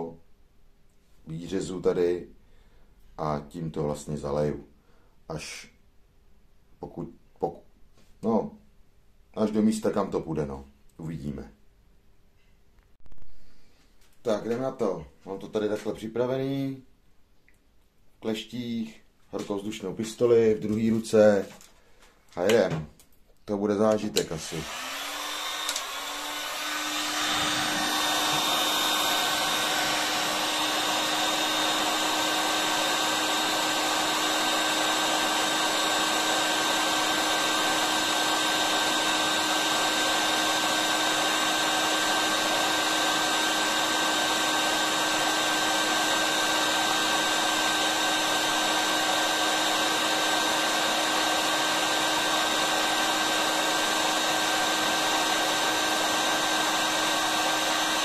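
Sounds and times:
heat gun blowing: 24.2s - 58.0s.

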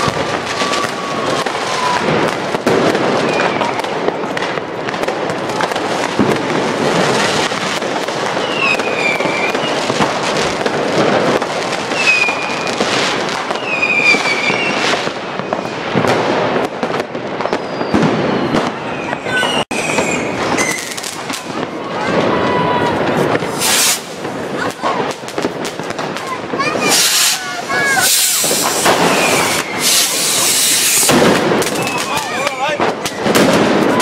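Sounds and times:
whistling rockets: 0.0s - 4.6s, 5.3s - 10.7s, 11.3s - 25.1s, 26.6s - 34.0s
firecracker and rocket bangs: 0.0s - 34.0s.

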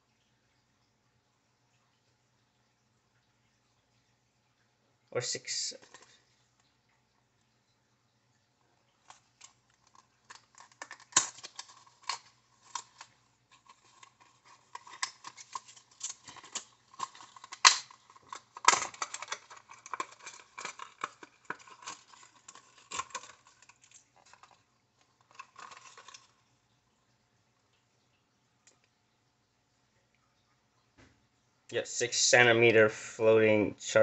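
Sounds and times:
plastic package crackling: 5.7s - 6.2s, 9.1s - 26.4s.

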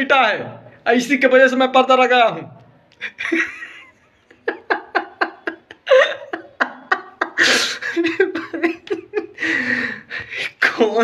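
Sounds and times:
man laughing: 3.0s - 10.1s
breathy gasp: 9.4s - 10.6s.

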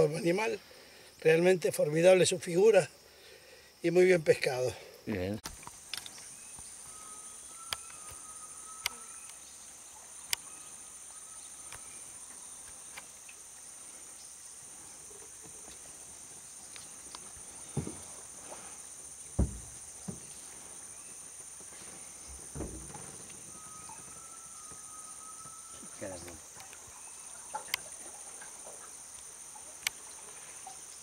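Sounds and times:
insects chorus: 0.0s - 31.0s
dull knocks: 17.7s - 18.1s, 19.3s - 20.4s, 22.3s - 23.5s.

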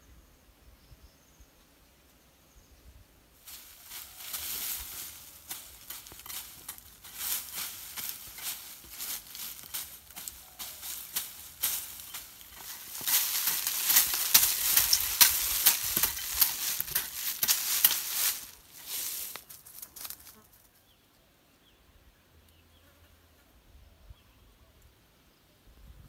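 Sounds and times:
hoe scraping and chopping soil: 3.6s - 20.4s.

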